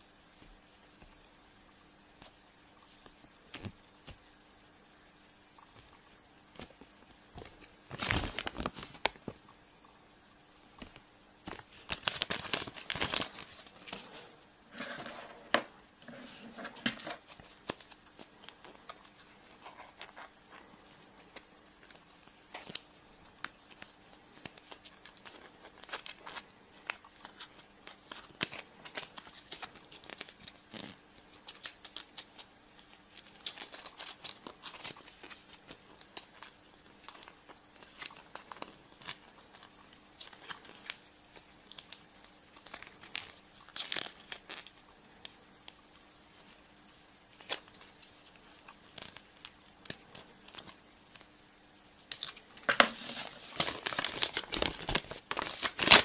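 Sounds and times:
wrappers crinkling and tearing: 7.4 - 9.2, 10.8 - 14.3, 16.1 - 46.6, 47.3 - 51.4, 52.0 - 56.0.

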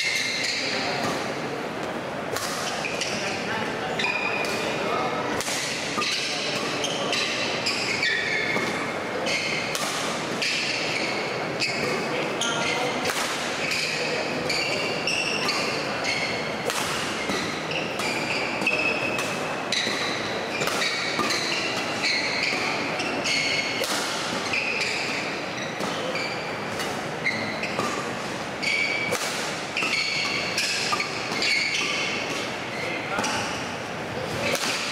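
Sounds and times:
racket hitting shuttlecock: 0.0 - 3.2, 5.4 - 12.0, 13.0 - 33.7, 34.3 - 34.9
shoes squeaking on floor: 5.7 - 9.7, 10.4 - 13.0, 13.6 - 33.7.

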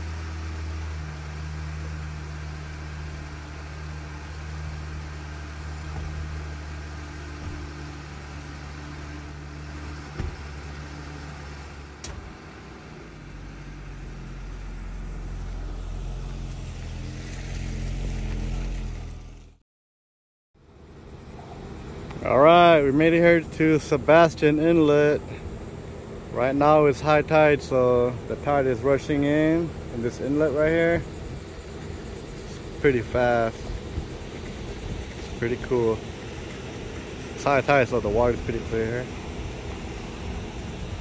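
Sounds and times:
car driving off: 0.0 - 19.6, 20.7 - 41.0
car engine idling: 0.0 - 19.6, 20.6 - 41.0
car door shutting: 7.2 - 7.9, 10.0 - 10.7, 12.0 - 12.4.

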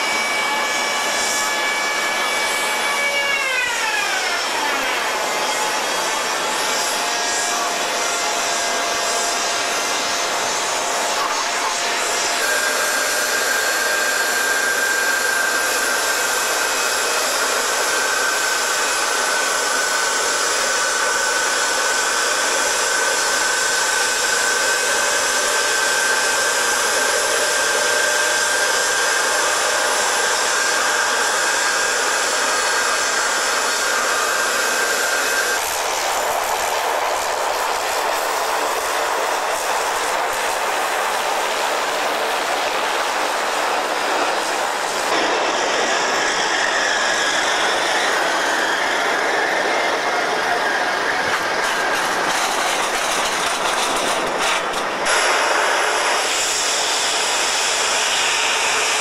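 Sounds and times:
jet engine whine: 0.0 - 59.0
jet engine rushing noise: 34.1 - 57.6.

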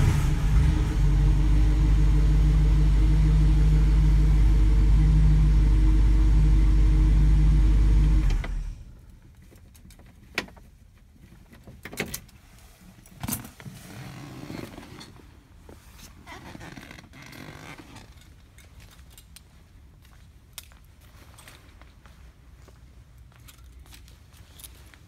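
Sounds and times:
car engine idling: 0.0 - 9.2.

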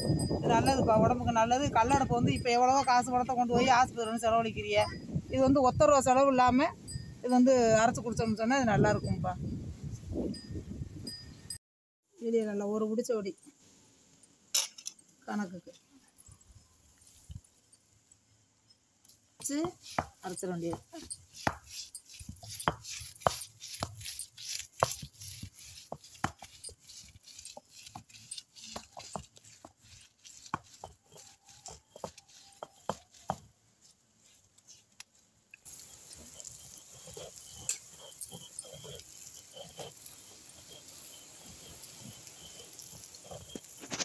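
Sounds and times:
stone roller grinding leaves: 19.4 - 44.0
hiss: 35.7 - 44.0.

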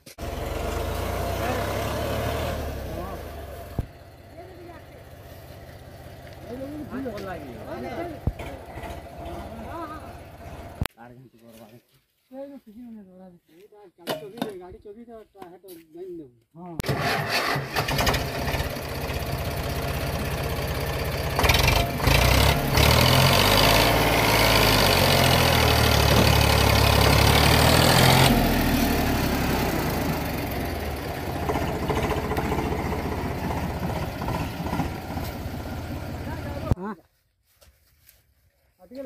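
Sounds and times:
tractor diesel engine under load: 0.0 - 10.9, 16.8 - 36.8.

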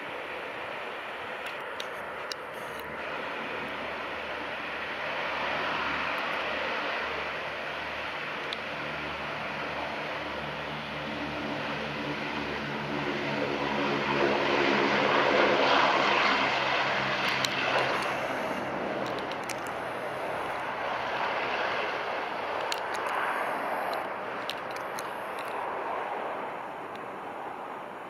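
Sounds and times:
propeller plane engines drone: 0.0 - 28.0.

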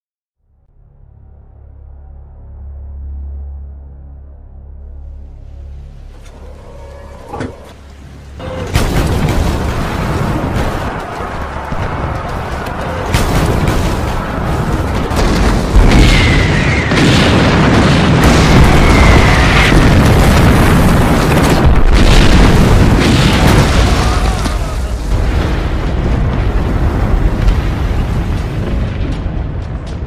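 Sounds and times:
music: 0.4 - 9.2
explosions and booms: 6.4 - 30.0.

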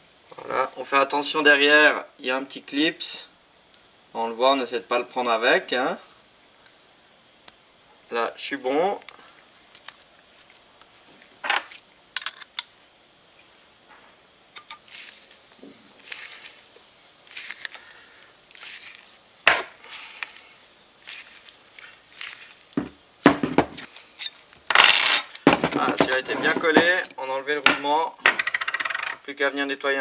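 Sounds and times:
metal tools clinking and clicking: 24.2 - 27.2.

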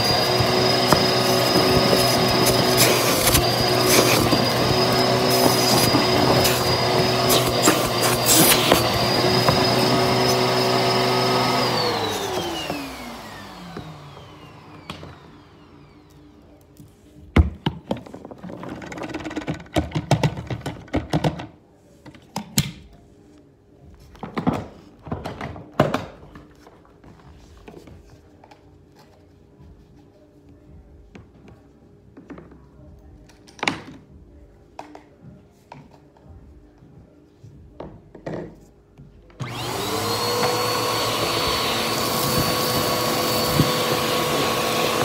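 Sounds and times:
vacuum cleaner motor whine: 0.0 - 16.6, 39.4 - 45.0.

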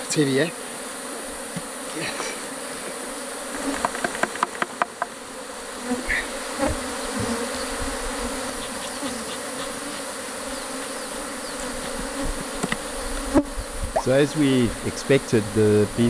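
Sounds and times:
honeybees humming: 0.0 - 16.0
wooden hive boxes knocking: 3.6 - 5.2.

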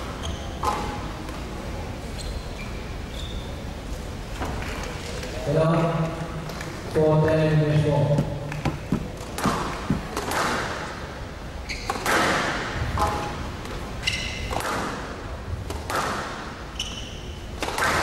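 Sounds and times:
shoes squeaking on court floor: 0.0 - 1.1, 2.0 - 5.0, 8.2 - 10.6, 11.6 - 14.8, 16.7 - 18.0
squash ball hits echoing: 8.0 - 11.0, 11.8 - 16.6, 17.6 - 18.0.

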